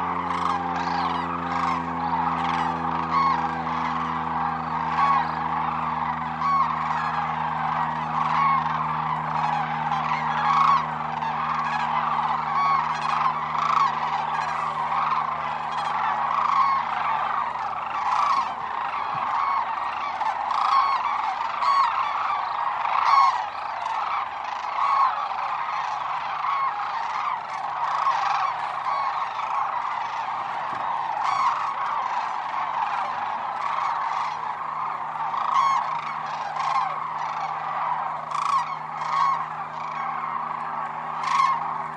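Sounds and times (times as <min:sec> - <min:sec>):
sandhill cranes calling: 0:00.0 - 0:41.9
steady low hum: 0:00.0 - 0:41.9.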